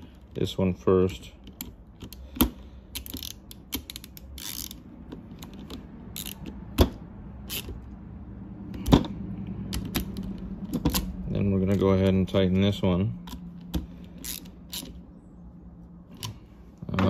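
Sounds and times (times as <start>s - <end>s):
screwdriver ratchet clicks: 1.6s - 4.8s, 6.1s - 6.5s.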